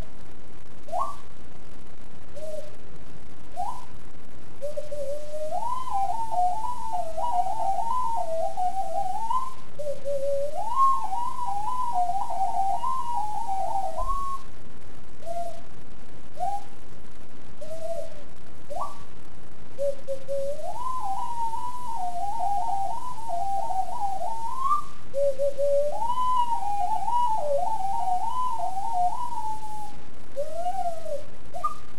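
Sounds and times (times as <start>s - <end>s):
ocarina melody: 3.5s - 3.9s, 4.6s - 14.5s, 15.2s - 15.7s, 16.4s - 16.7s, 17.6s - 19.0s, 19.8s - 31.9s.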